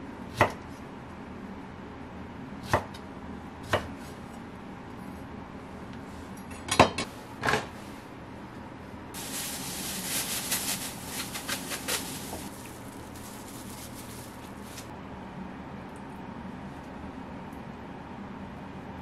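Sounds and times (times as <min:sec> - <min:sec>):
plastic bag crinkling: 0:09.2 - 0:14.9.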